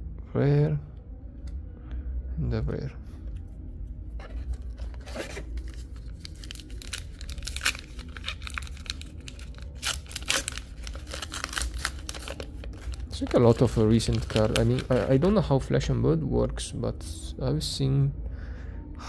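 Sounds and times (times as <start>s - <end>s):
wrapper tearing and crinkling: 4.6s - 15.3s.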